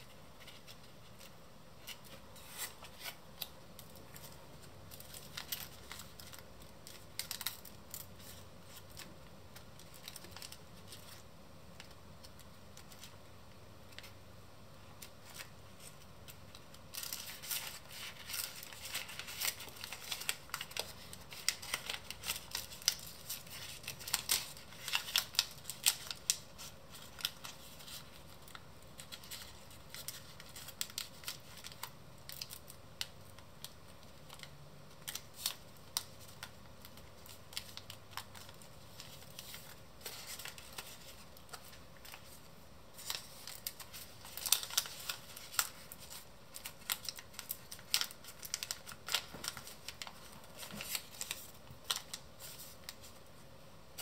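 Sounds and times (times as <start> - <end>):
paper crackling and rustling: 0.0 - 14.2, 14.8 - 54.0.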